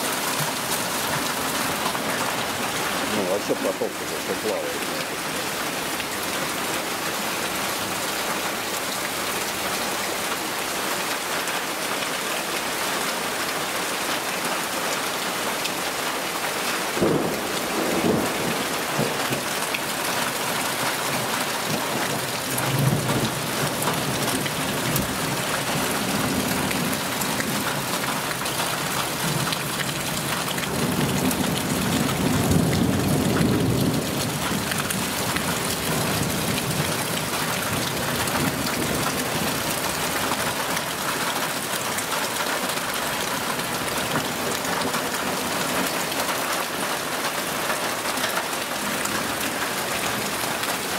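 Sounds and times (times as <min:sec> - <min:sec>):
heavy rain: 0:00.0 - 0:50.9.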